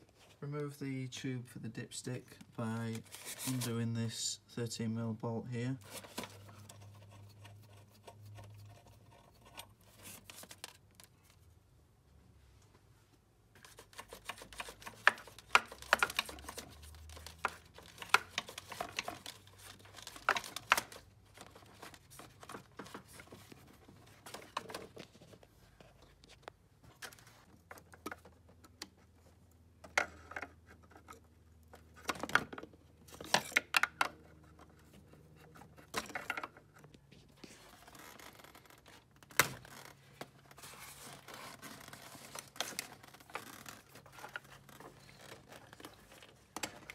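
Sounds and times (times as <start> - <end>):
hands working rubber parts loose: 13.6 - 25.0.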